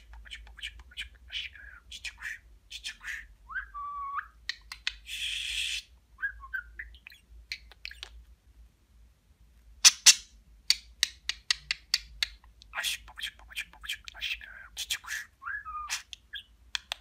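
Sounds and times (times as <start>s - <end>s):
budgerigar whistling and chattering: 14.0s - 16.5s
sharp clicks: 16.7s - 17.0s.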